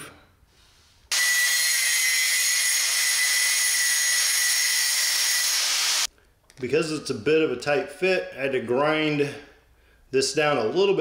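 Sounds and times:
electric grinder grinding steel: 1.1 - 6.1.

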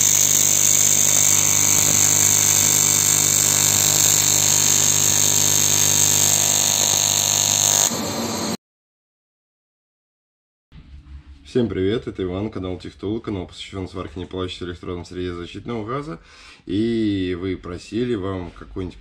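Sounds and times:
welding arc buzzing: 0.0 - 8.6.

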